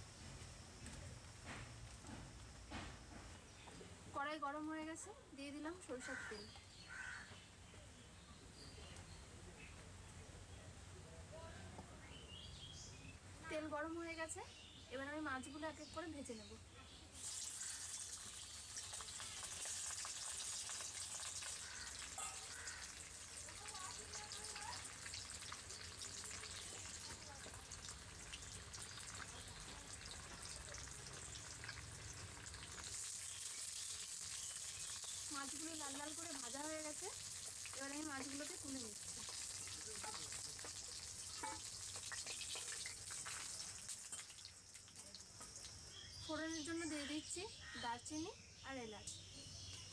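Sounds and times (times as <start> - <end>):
fish frying in hot oil: 17.1 - 46.0.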